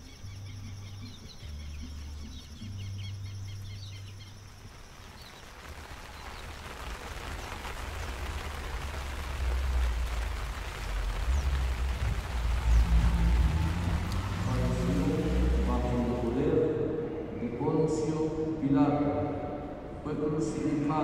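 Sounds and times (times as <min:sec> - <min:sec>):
small birds chirping: 0:00.0 - 0:08.5, 0:10.0 - 0:16.6
steady rushing noise: 0:04.8 - 0:21.0
low rumble: 0:09.2 - 0:17.8
low hum: 0:10.0 - 0:20.2.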